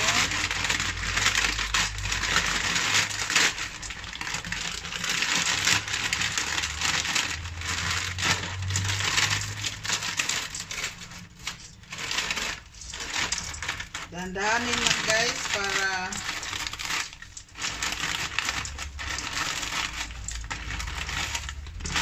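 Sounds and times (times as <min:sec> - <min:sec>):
dry noodles crackling: 0:00.0 - 0:22.0
plastic bag crinkling: 0:00.0 - 0:22.0.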